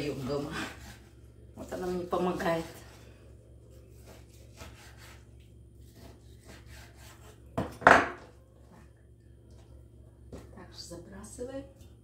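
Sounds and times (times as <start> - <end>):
knife sawing through raw meat: 0.0 - 1.1, 3.9 - 7.4
knocks on wooden cutting board: 7.6 - 8.2.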